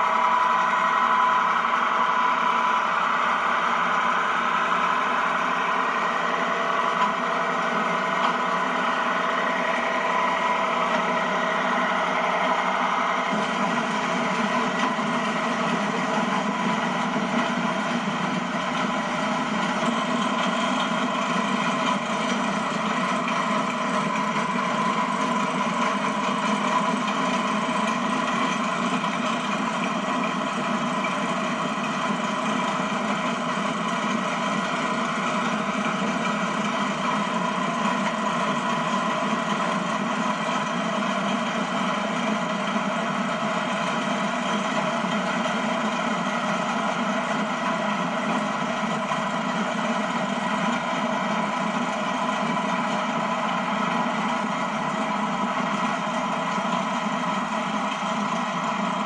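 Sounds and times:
tractor engine and corn picker drone: 0.0s - 59.0s.

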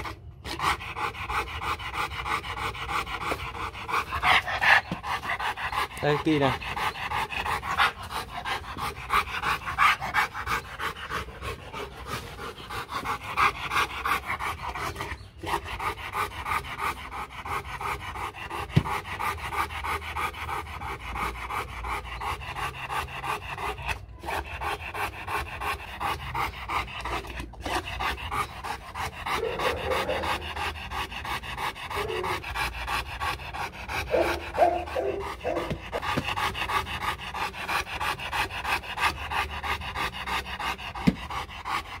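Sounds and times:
dog panting: 0.0s - 42.0s.

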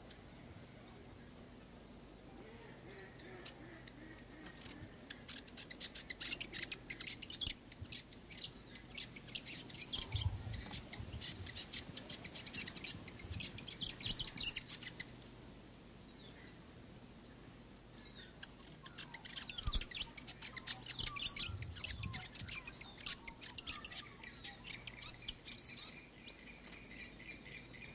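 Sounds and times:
high bird chirps: 18.4s - 26.2s.

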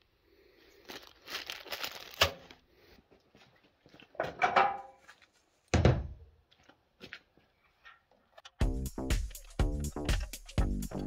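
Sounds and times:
plastic packaging crinkling: 0.7s - 2.6s.

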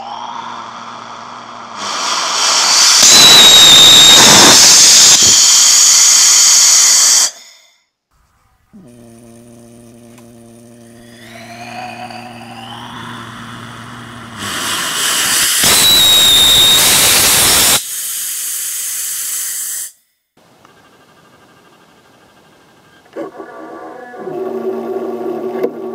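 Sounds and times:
humming tone with rising whistles: 0.0s - 6.8s, 10.7s - 17.8s
rocket engine hissing and whistling: 0.0s - 7.7s, 11.0s - 20.0s.

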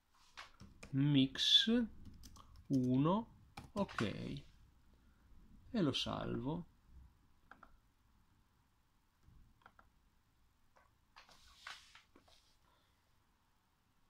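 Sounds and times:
computer mouse clicks: 7.4s - 7.8s.

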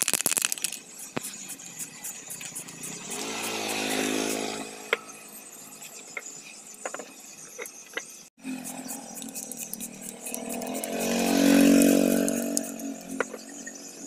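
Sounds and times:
spray paint can hissing: 0.0s - 4.4s, 8.4s - 13.8s.

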